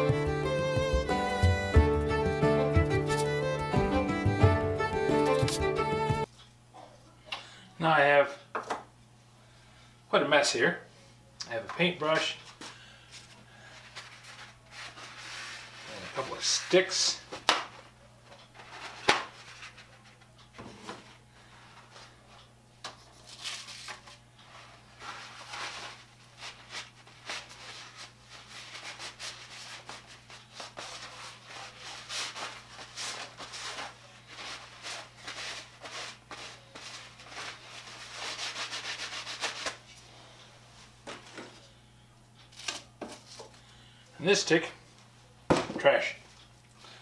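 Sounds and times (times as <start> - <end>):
paper towel rubbing and scrunching: 13.8 - 16.9, 24.5 - 39.9.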